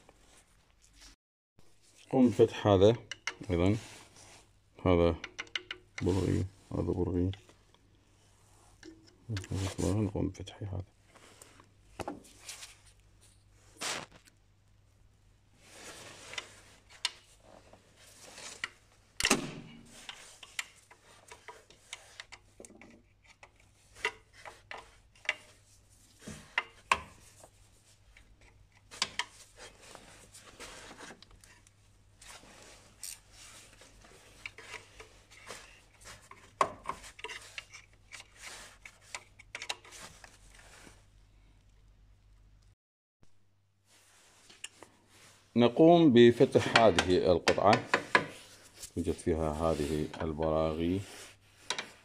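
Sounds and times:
hand tools clicking and tapping: 0:05.2 - 0:06.0.

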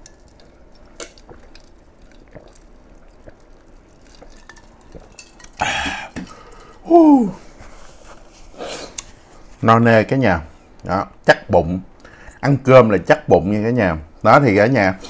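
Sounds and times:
swallowing clicks: 0:02.2 - 0:03.5
breathy exhale: 0:05.6 - 0:06.8
man saying ahh: 0:06.8 - 0:07.4.

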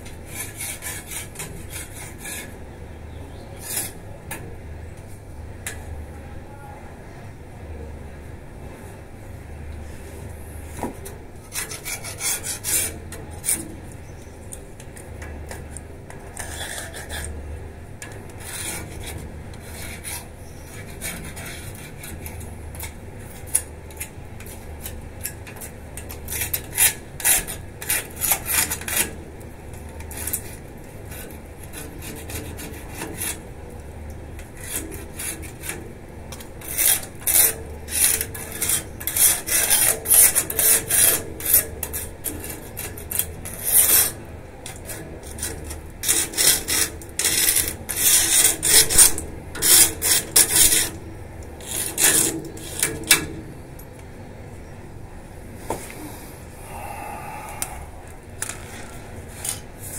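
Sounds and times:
scraping metal railing: 0:00.0 - 0:02.6, 0:11.0 - 0:29.2, 0:34.4 - 0:53.6, 0:57.6 - 0:59.9.

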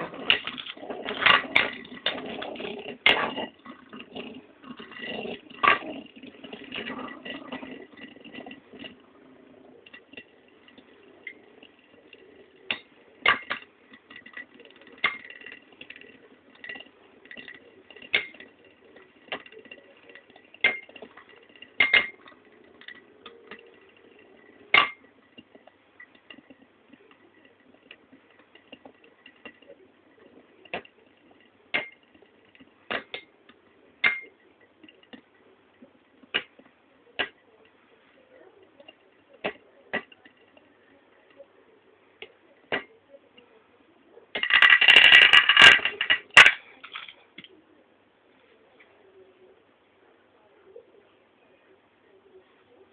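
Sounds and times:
spinning tops clashing clicks: 0:44.4 - 0:47.2.

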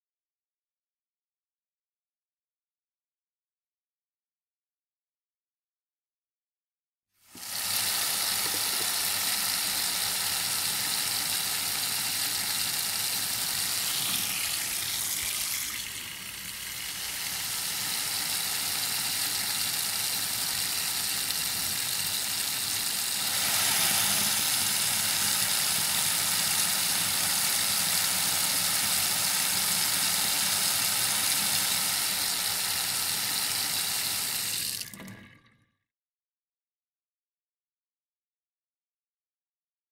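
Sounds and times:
tap water pouring into metal sink: 0:07.4 - 0:35.6.

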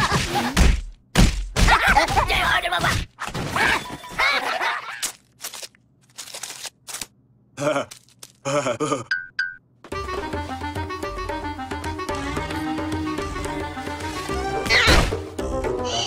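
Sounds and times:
cartoon voices laughing and jeering: 0:01.6 - 0:02.9, 0:03.5 - 0:05.0.

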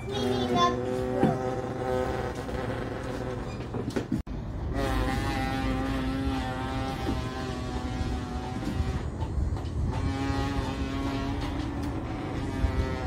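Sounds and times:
boy imitating motor droning: 0:00.1 - 0:02.9.

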